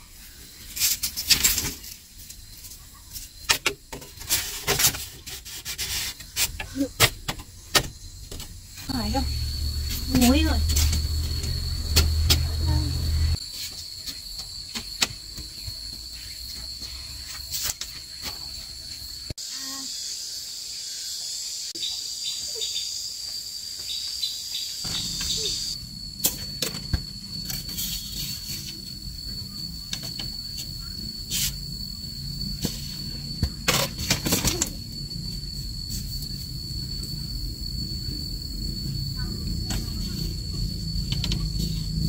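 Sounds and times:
insects trilling: 0.0 - 42.0.

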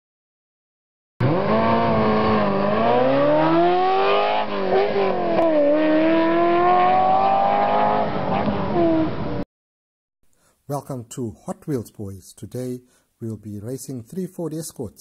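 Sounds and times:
race car engine revving: 1.2 - 9.4.

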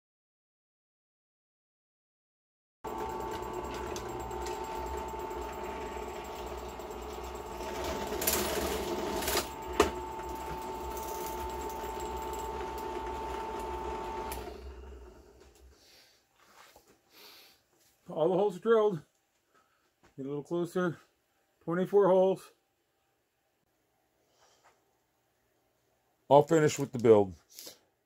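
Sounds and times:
drill press cutting pipe: 2.9 - 15.7.

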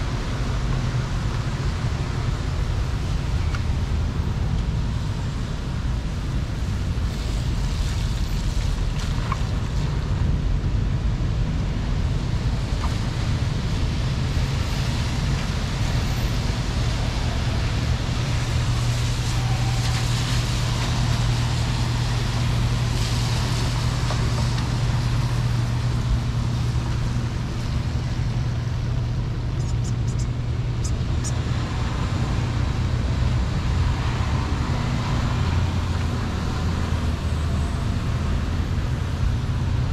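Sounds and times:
hiss of water on wet road: 0.0 - 11.1, 11.7 - 39.9
low engine hum: 0.0 - 39.9
road traffic rumble: 0.0 - 39.9.

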